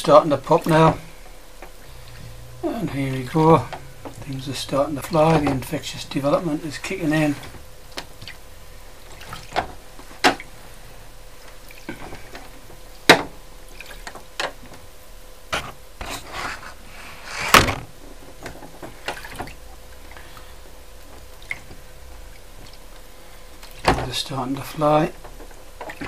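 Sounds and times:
liquid sloshing in a tray: 9.0s - 10.6s, 18.5s - 23.0s
small splashes and clicks: 13.7s - 14.8s, 18.4s - 24.0s.

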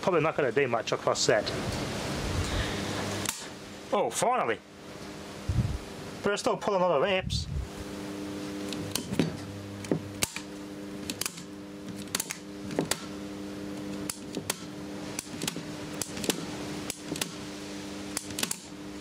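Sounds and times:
electrical mains hum: 0.0s - 19.0s
sharp electrical clicks and crackles: 3.1s - 3.6s, 8.6s - 9.2s, 9.8s - 17.5s, 18.1s - 18.8s.

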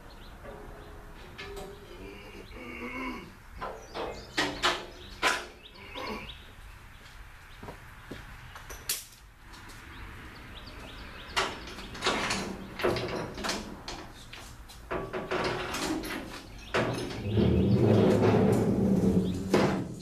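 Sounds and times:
metal clanks and rattles: 0.4s - 2.0s, 3.6s - 5.6s, 11.2s - 20.0s.

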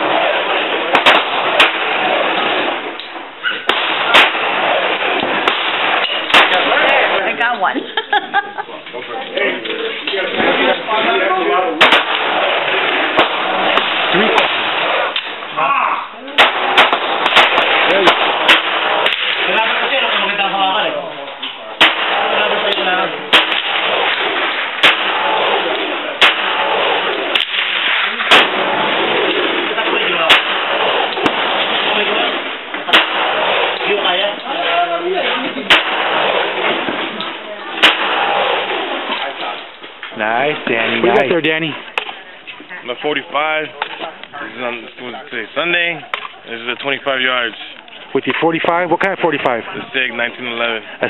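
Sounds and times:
pistol shots: 0.0s - 7.4s, 10.3s - 15.5s, 16.3s - 20.3s, 21.7s - 40.0s
background noise: 0.0s - 51.0s.

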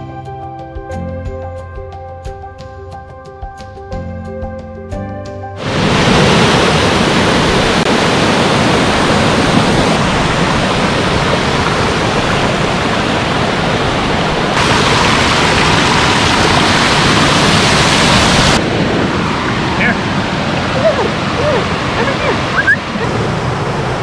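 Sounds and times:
waterfall rushing: 5.6s - 24.0s.

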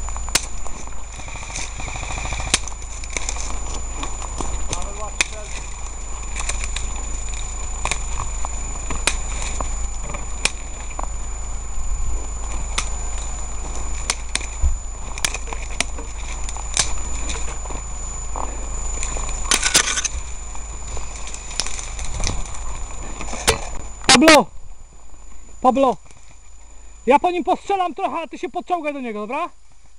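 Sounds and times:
vegetation rustling: 0.0s - 28.0s
twigs snapping: 2.5s - 11.1s, 14.0s - 17.5s, 21.0s - 22.6s.

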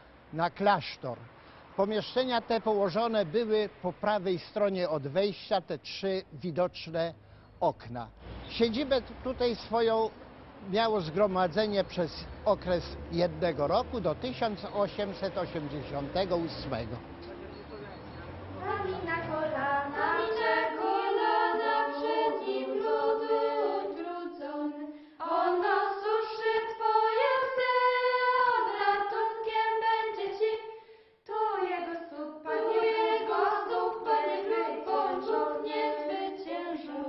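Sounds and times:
choir singing a cappella: 18.6s - 37.0s.

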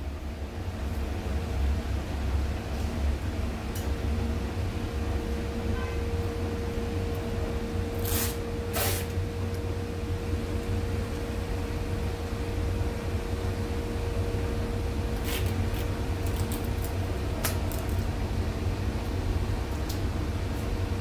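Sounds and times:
low mechanical hum: 0.0s - 21.0s
tape tearing off roll: 8.0s - 9.2s, 15.2s - 18.0s.

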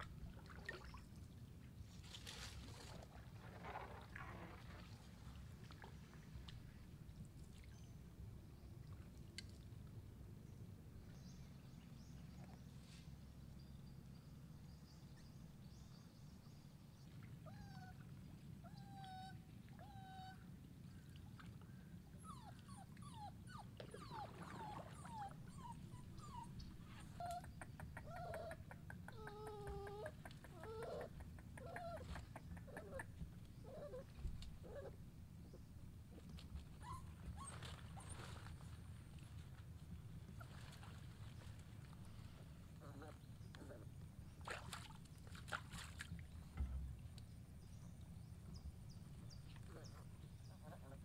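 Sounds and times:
puppy whimpering and crying: 18.6s - 20.4s, 22.2s - 33.1s.

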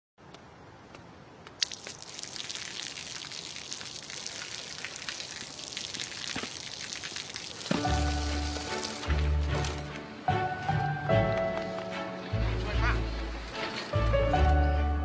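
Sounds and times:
water spattering on pavement: 1.5s - 9.7s.

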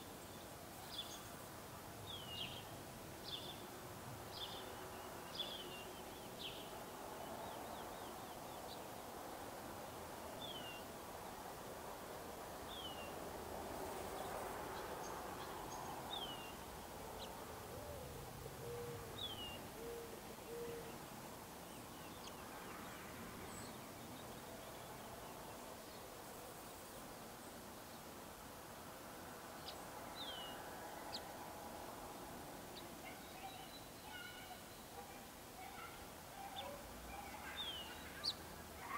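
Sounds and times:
faint outdoor hiss: 0.0s - 38.9s
low cooing call: 17.6s - 20.9s.

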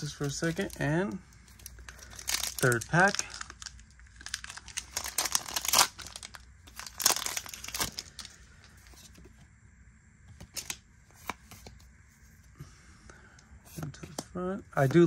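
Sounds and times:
foil wrapper tearing and crinkling: 1.6s - 8.3s.

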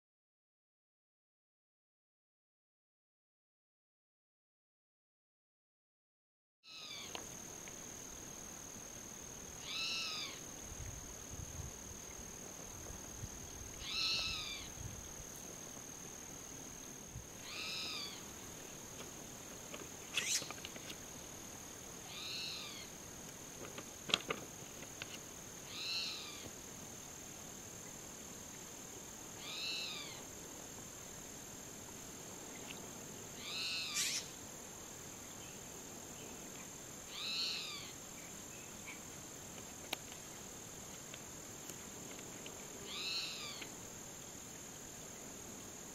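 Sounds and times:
bird contact call: 20.1s - 20.7s, 33.5s - 34.3s.

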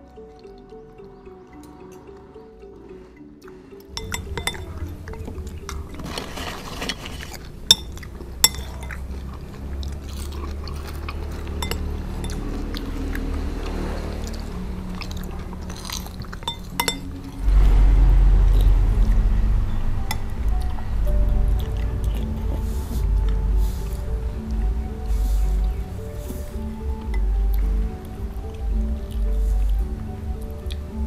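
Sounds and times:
background music: 0.0s - 31.0s
spoons clinking on ceramic bowls: 3.8s - 9.4s, 11.2s - 12.9s, 15.7s - 17.4s.

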